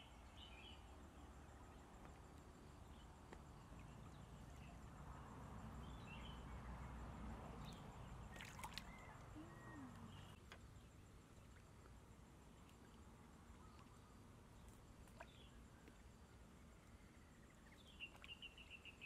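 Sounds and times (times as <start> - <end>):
muddy water sloshing: 7.6 - 11.9.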